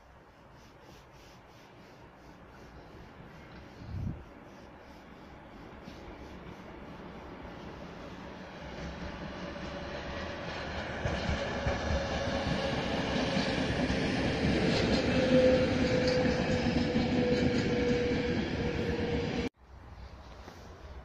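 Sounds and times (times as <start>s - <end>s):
passenger train passing: 5.3s - 19.5s.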